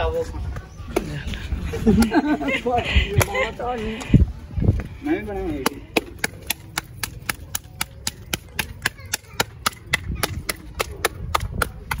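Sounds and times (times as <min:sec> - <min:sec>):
hands slapping dough: 0:05.6 - 0:12.0.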